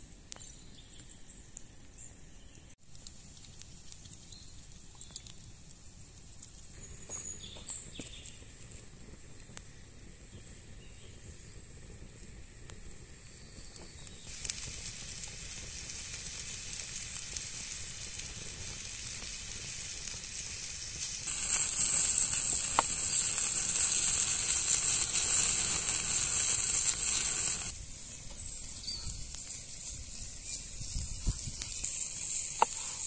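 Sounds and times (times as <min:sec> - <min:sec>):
meat sizzling on hot stone: 0:10.4 - 0:33.0.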